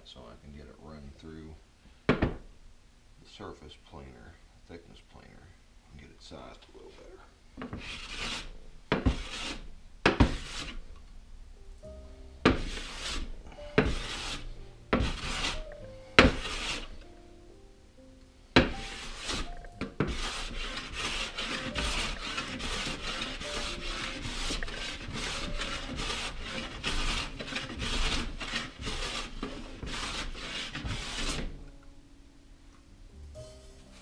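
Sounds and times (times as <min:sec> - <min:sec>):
hand plane shaving wood: 0:07.6 - 0:10.8, 0:12.4 - 0:17.0, 0:18.6 - 0:31.6.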